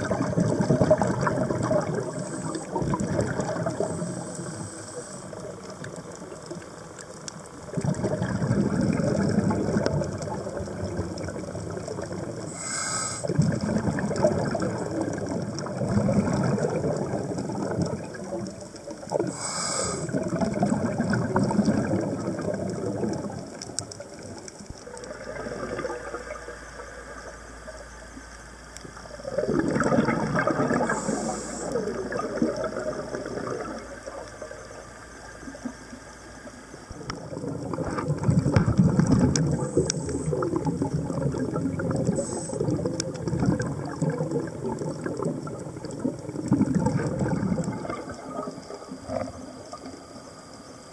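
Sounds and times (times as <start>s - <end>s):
exhaled air bubbling underwater: 0.0s - 50.9s.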